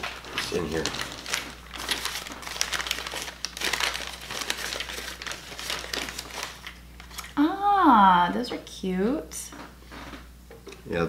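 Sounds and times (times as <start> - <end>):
newspaper crinkling: 0.0 - 7.4.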